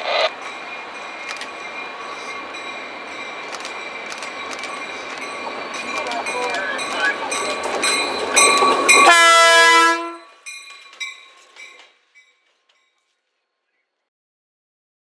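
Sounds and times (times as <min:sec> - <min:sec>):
locomotive engine and rail noise: 0:00.0 - 0:14.1
locomotive horn blast: 0:09.0 - 0:10.3.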